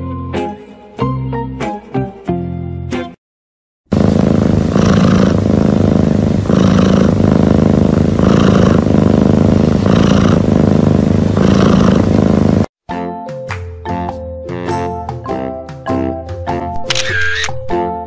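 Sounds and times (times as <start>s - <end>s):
cat purring rumble: 3.9s - 12.7s.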